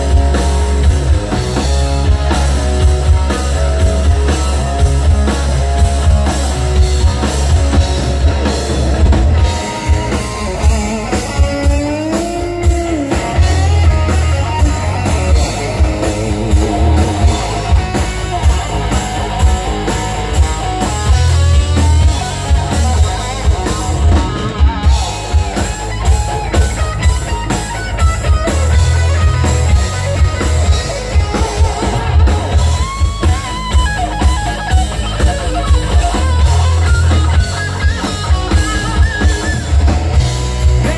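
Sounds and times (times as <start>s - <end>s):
electric guitar pitch bend: 0.0s - 40.9s
live rock band playing: 0.0s - 40.9s.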